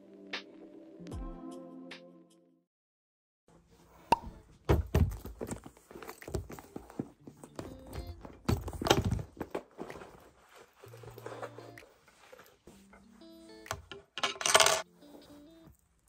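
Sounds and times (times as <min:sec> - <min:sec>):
leather bag rustling: 0:04.8 - 0:13.6
bag thudding on table: 0:08.0 - 0:09.6.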